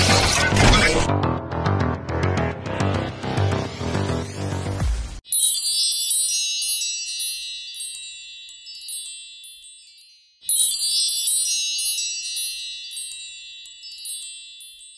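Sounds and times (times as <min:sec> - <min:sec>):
wind chimes tinkling: 0:05.2 - 0:14.9.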